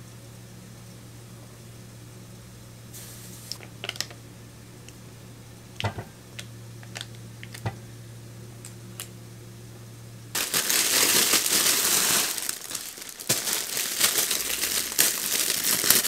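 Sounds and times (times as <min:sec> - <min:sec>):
steady low hum: 0:00.0 - 0:16.0
foil wrapper crinkling: 0:10.3 - 0:16.0.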